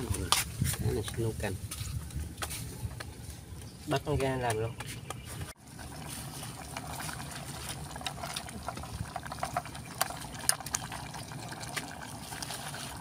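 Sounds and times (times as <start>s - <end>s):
pot bubbling with pops: 5.6s - 13.0s.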